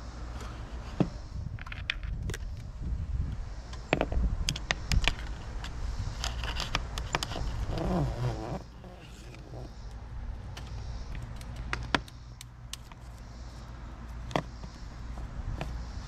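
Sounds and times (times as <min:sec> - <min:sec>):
steady low rumble: 0:00.0 - 0:16.0
scraping and handling noise: 0:03.8 - 0:15.8
sharp clicks: 0:10.5 - 0:13.0.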